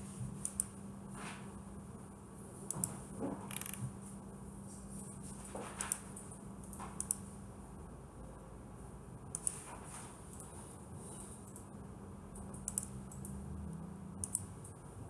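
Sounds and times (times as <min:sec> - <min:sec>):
computer mouse clicks: 0:00.4 - 0:00.7, 0:06.6 - 0:07.2, 0:09.3 - 0:09.7, 0:11.3 - 0:11.7, 0:12.4 - 0:13.4, 0:14.2 - 0:14.8.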